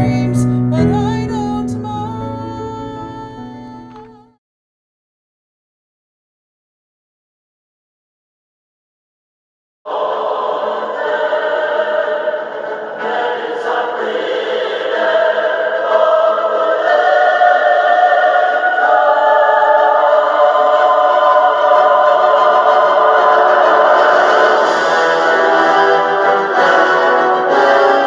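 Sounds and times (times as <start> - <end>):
choir singing held chords: 9.9 - 28.0.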